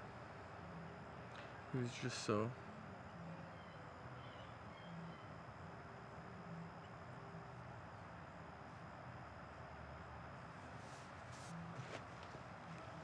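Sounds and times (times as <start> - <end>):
faint low hum: 0.0 - 13.0
faint high chirps: 3.0 - 8.6.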